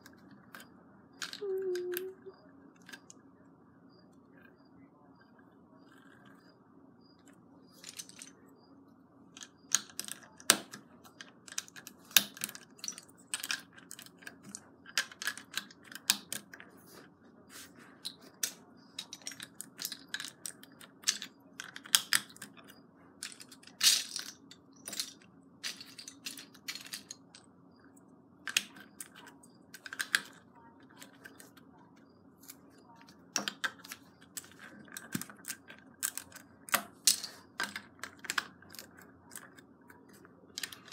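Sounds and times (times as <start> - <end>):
plastic bricks clicking: 0.0 - 2.2, 7.8 - 8.4, 9.3 - 16.6, 18.0 - 27.5, 28.4 - 31.6, 32.4 - 40.9.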